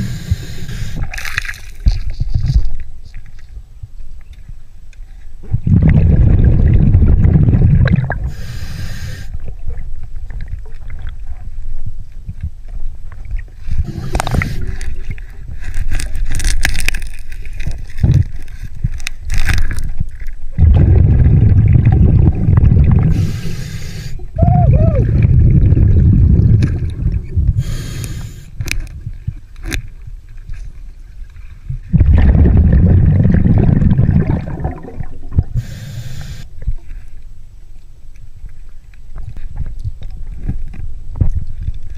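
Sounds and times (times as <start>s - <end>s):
regulator hissing inhalations: 0.0s - 1.1s, 8.3s - 9.3s, 23.1s - 24.2s, 27.6s - 28.6s, 35.6s - 36.5s
clicking and scraping underwater: 0.0s - 24.4s, 25.1s - 41.9s
exhaled bubbles underwater: 5.4s - 8.5s, 20.5s - 27.8s, 31.9s - 36.7s.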